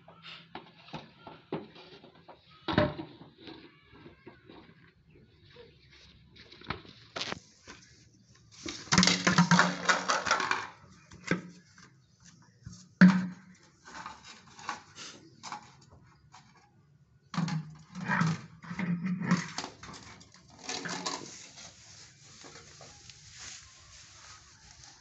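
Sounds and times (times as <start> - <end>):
plastic feeder clattering and knocking: 0.6 - 4.9, 8.7 - 12.0, 12.7 - 21.7.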